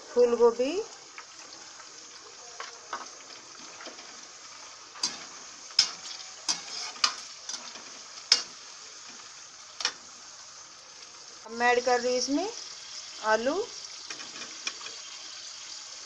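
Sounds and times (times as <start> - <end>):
vegetables sizzling in oil: 0.0 - 16.0
spatula scraping pan: 2.9 - 10.0.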